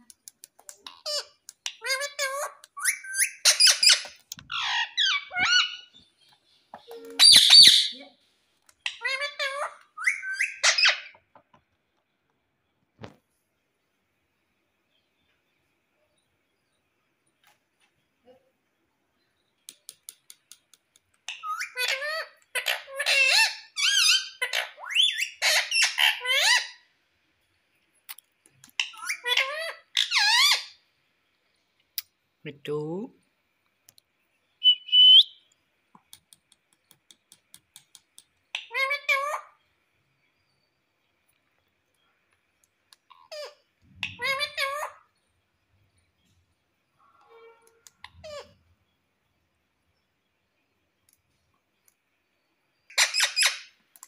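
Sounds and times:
parakeet chirping and whistling: 1.0 - 6.0, 7.2 - 7.9, 9.1 - 11.2, 23.1 - 26.7, 34.6 - 35.4
parakeet chattering: 7.1 - 8.0
parakeet squawk: 7.2 - 8.0, 8.8 - 11.2.

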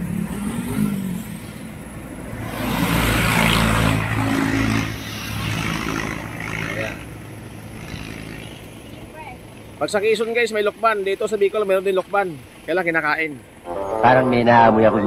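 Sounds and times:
motorcycle passing: 0.0 - 9.4.

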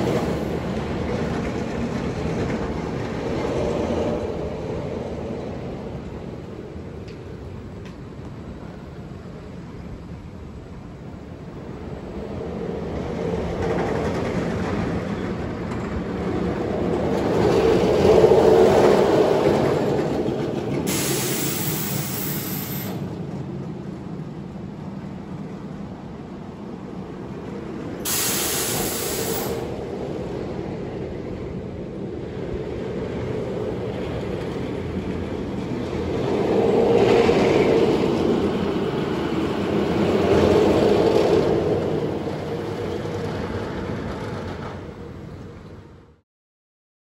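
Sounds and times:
roller coaster train rumbling: 0.0 - 46.2
sharp hisses of air: 20.9 - 23.0, 28.0 - 29.7.

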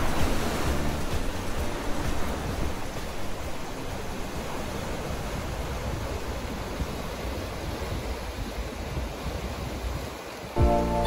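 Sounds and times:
surf breaking over rocks: 0.0 - 8.6.

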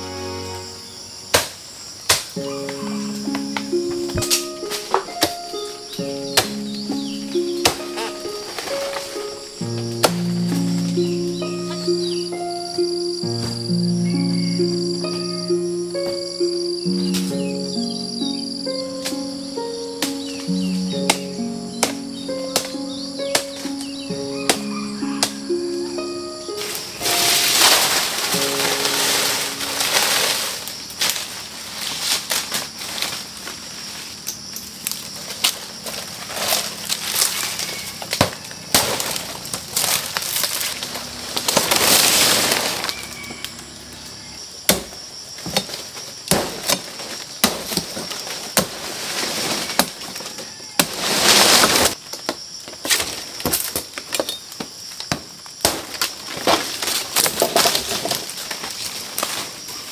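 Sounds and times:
rustling swishes: 26.6 - 32.2.

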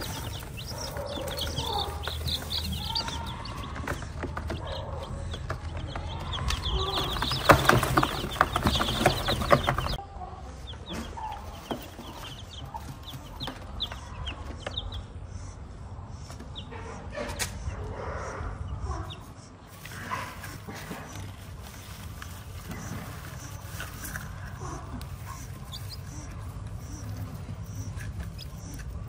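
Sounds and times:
rustles: 0.0 - 4.8, 5.6 - 10.0, 19.7 - 29.0
chicks peeping: 0.0 - 29.0.

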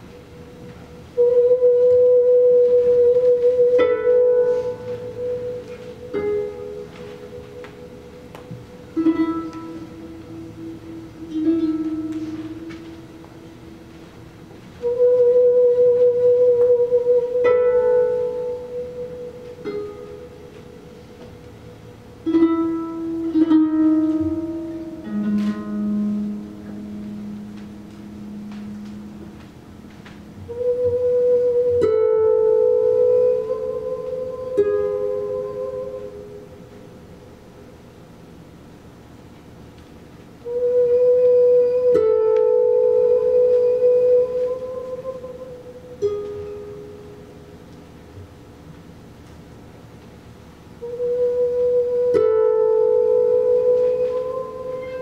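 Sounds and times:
harps plucked: 1.5 - 14.6, 15.2 - 37.0.

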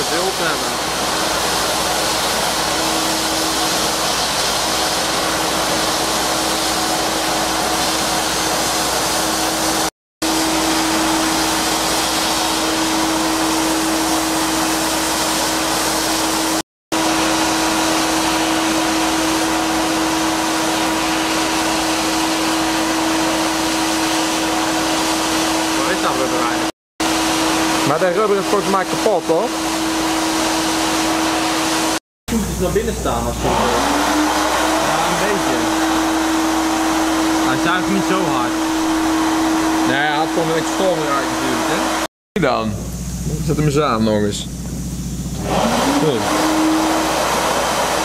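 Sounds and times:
sandblasting hiss: 0.1 - 12.9.

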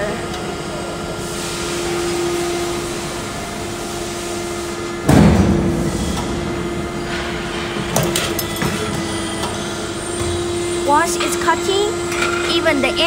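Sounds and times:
machine humming: 0.0 - 13.0.

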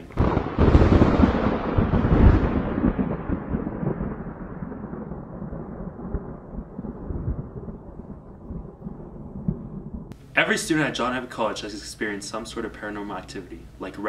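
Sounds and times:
dramatic low rumble: 0.0 - 10.2.

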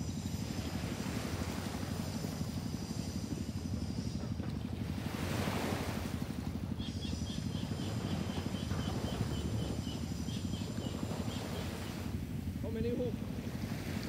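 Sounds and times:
waves washing on shore: 4.8 - 6.7, 7.9 - 14.0.

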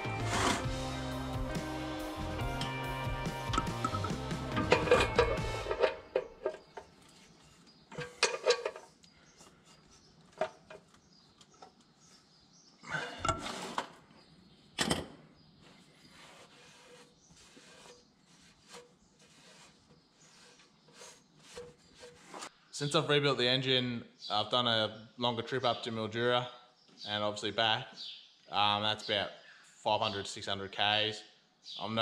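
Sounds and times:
metal clanks: 3.4 - 6.9, 7.9 - 9.0.

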